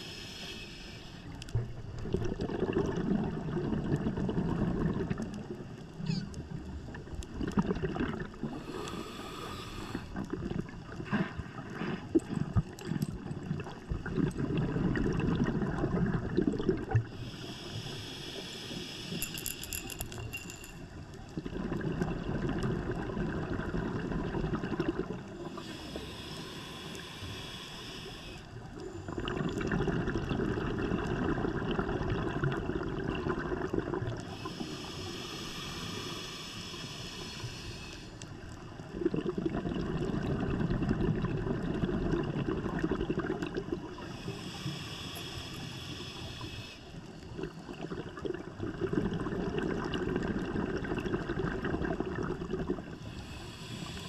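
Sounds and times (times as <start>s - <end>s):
regulator inhale hiss: 0.0s - 1.6s, 8.5s - 10.3s, 17.1s - 20.8s, 25.4s - 29.2s, 34.1s - 38.6s, 44.0s - 47.8s, 53.0s - 54.0s
exhaled air bubbling underwater: 0.0s - 54.0s.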